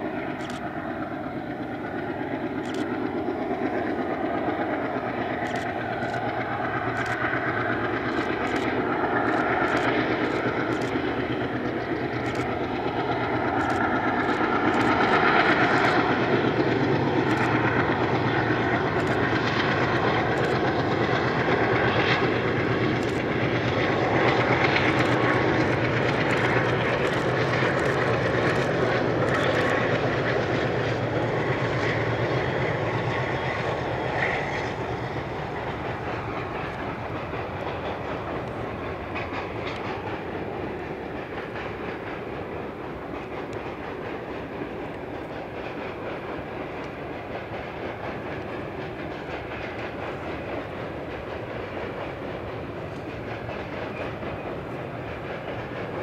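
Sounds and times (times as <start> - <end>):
diesel locomotive engine drone: 0.0 - 56.0
train wagons rolling on bridge: 0.0 - 56.0.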